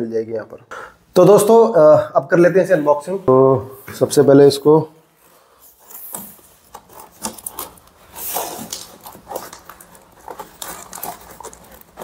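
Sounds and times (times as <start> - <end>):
cardboard scraping and rubbing: 5.3 - 12.0.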